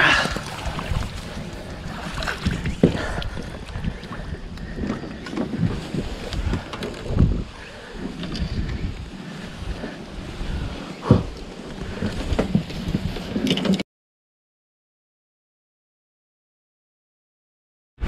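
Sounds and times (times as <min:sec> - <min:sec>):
wind buffeting microphone: 0:00.0 - 0:13.5.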